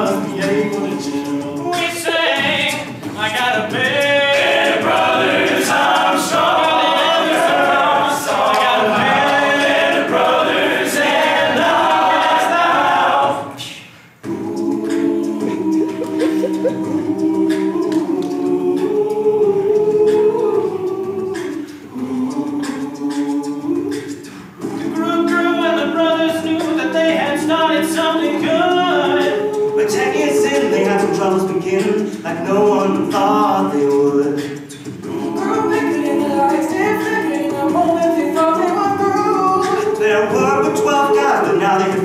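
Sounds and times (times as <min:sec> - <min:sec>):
higher lead vocal melody: 0:00.0 - 0:13.6, 0:14.3 - 0:34.5
male voices holding backing chords: 0:15.4 - 0:17.6.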